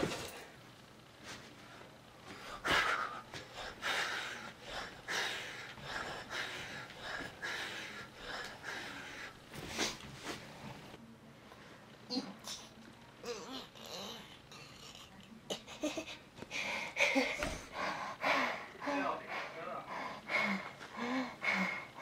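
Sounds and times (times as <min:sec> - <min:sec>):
man breathing hard: 0:02.3 - 0:10.0, 0:16.4 - 0:22.0.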